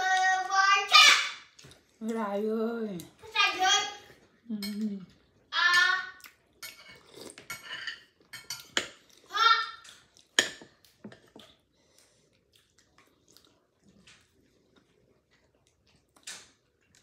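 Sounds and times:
metal spoon scraping ceramic bowl: 6.6s - 8.6s.

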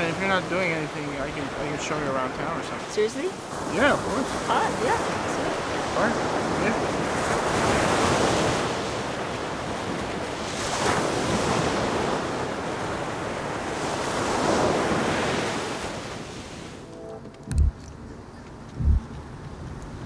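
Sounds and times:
surf breaking on beach: 3.4s - 16.8s
wind buffeting microphone: 17.4s - 20.0s.

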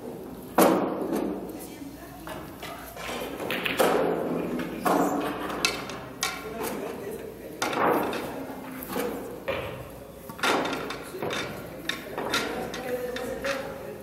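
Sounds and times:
pool balls clacking: 2.3s - 7.0s, 7.6s - 13.8s.

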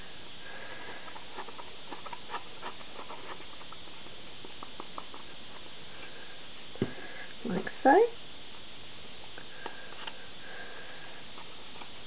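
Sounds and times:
steady background hiss: 0.0s - 12.0s
hands handling cardboard and plastic: 0.9s - 5.7s.

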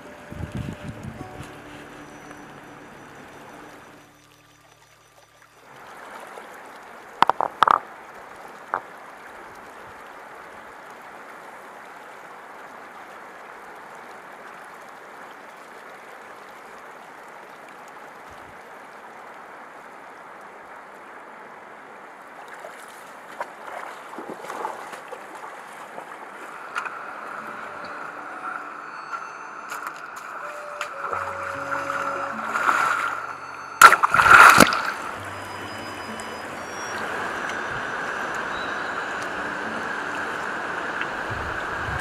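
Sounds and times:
river running over stones: 0.0s - 42.0s
splashing in water: 22.4s - 42.0s.

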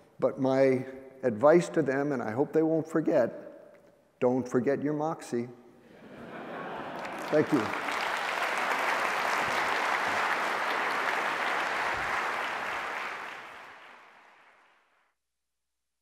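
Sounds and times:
audience applauding: 6.1s - 14.9s.

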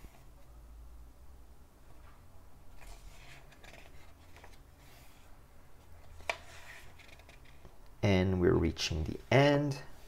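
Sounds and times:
low room hum: 0.0s - 10.0s
book pages turning: 2.8s - 5.3s, 6.0s - 7.8s.

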